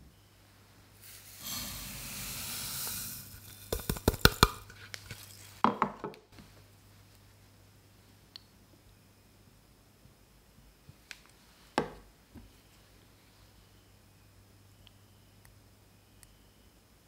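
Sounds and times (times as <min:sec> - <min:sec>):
sugar pouring into water: 0:01.0 - 0:05.6
sharp clicks and knocks: 0:03.7 - 0:04.7.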